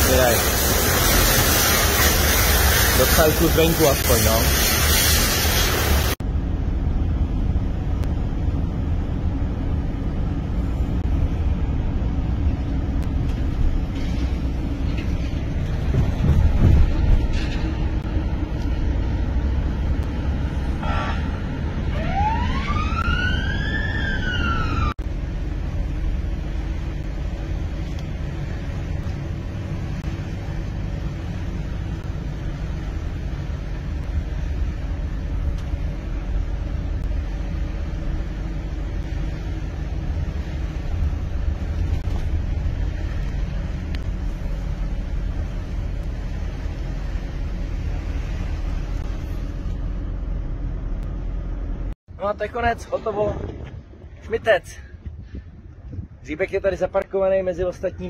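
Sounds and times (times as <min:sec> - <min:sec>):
van engine and tyre rumble: 0:00.0 - 0:58.0
wailing tone rising in pitch: 0:21.9 - 0:25.0.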